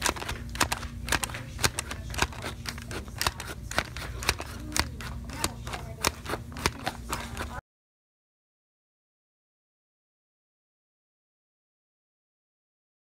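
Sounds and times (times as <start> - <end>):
plastic food chopper clacking: 0.0 - 7.6.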